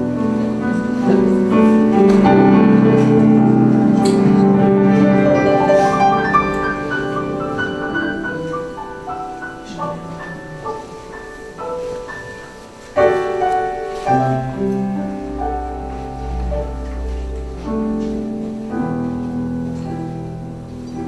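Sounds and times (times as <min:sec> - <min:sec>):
grand piano playing: 0:00.0 - 0:21.0.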